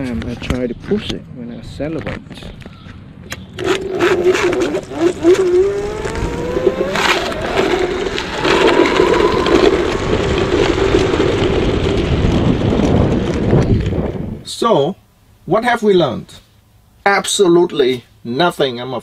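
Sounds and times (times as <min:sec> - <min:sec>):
electric motor whining: 0:03.6 - 0:12.8
tyre and wind rush: 0:03.6 - 0:14.7.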